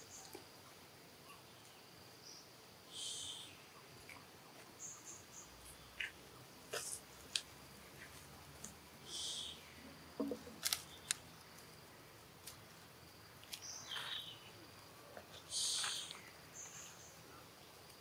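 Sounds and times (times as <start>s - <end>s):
dry leaves crackling: 10.5s - 11.7s.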